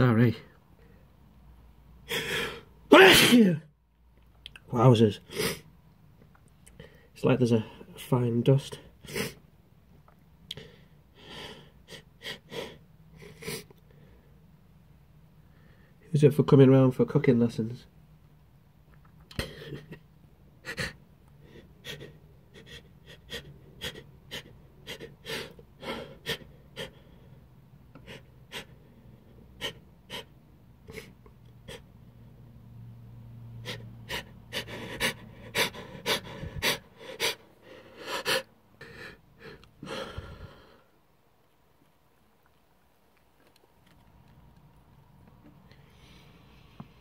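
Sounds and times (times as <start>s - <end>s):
man sniffing and gasping: 2.0s - 3.5s, 10.5s - 13.9s, 20.6s - 31.9s, 33.6s - 40.8s.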